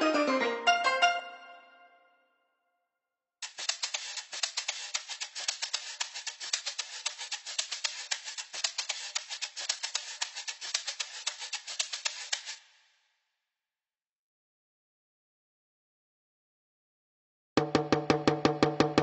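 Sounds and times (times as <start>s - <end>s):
crisp shaker loop: 3.4s - 12.6s.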